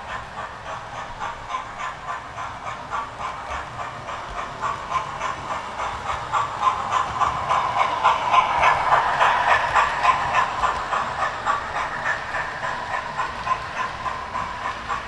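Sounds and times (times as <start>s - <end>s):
model trains whirring: 0.0s - 15.0s
wheels clicking over rails: 0.0s - 15.0s.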